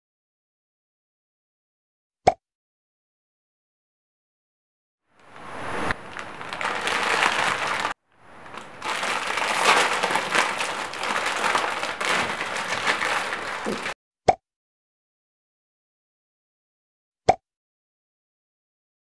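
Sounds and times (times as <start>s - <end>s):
plastic packets crinkling: 5.2s - 14.0s.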